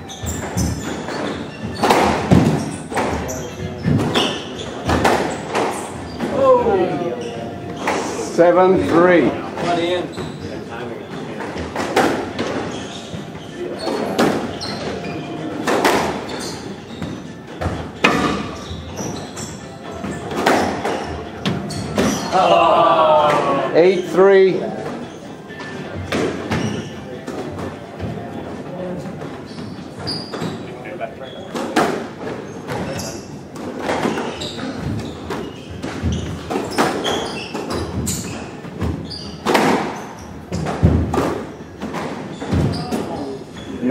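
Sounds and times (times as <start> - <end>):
squash ball and racquet hits: 0.0 - 23.6, 24.6 - 30.7, 31.4 - 43.7
shoes squeaking on wooden floor: 0.0 - 43.9
squash ball hits: 0.4 - 6.3, 33.6 - 43.1.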